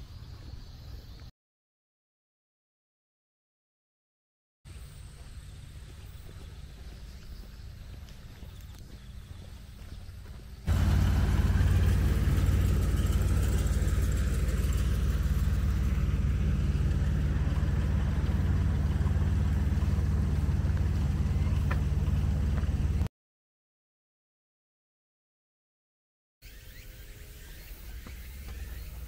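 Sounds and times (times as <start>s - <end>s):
low engine rumble: 4.7s - 23.1s.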